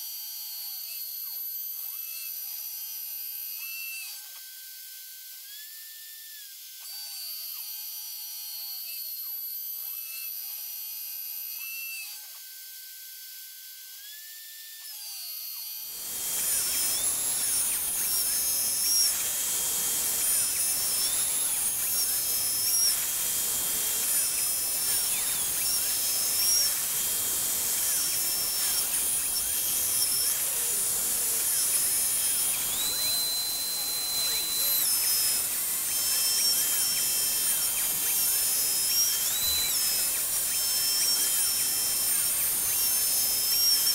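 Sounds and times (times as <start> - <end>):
router spindle milling metal: 15.1 - 43.9
high whining tones: 16.0 - 43.9.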